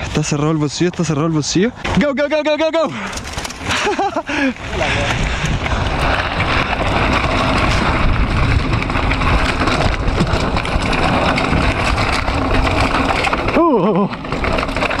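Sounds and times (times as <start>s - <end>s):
bike rattling: 0.0s - 15.0s
bike tyres crunching over gravel: 0.0s - 15.0s
wind on microphone: 4.6s - 13.0s.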